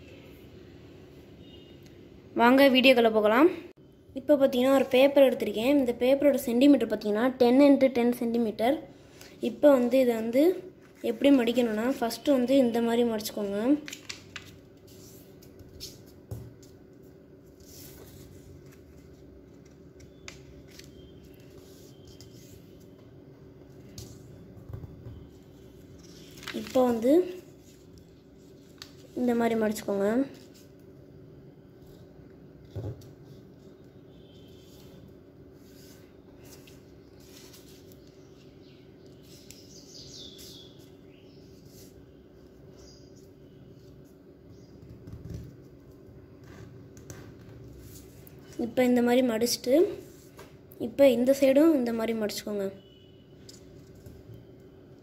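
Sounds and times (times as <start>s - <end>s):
low background hum: 0.0s - 55.0s
paper rustling and folding: 13.4s - 23.0s, 25.3s - 30.8s, 35.6s - 39.7s
paper crinkles: 17.6s - 23.0s, 26.0s - 29.3s.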